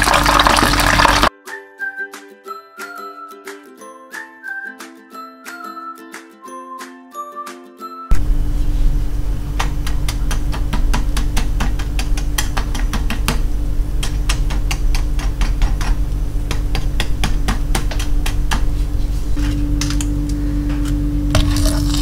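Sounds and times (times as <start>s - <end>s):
steady low hum: 8.1s - 22.0s
spatula scraping crispy chicken: 21.4s - 22.0s.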